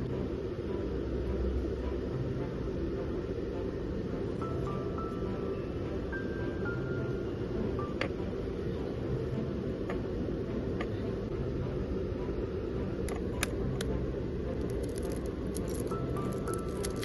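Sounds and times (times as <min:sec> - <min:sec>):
low rumble: 0:00.0 - 0:17.0
egg shell cracking: 0:14.5 - 0:17.0.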